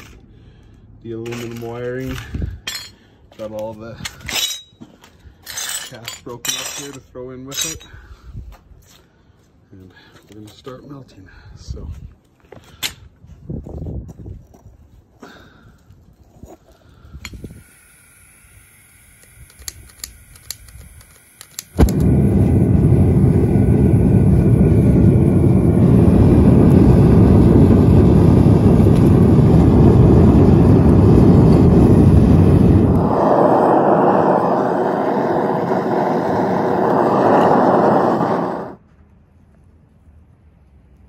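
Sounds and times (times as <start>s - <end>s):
gas burner roaring: 16.8s - 38.8s
burner igniting bang: 17.4s - 38.8s
igniter clicks: 19.1s - 22.1s.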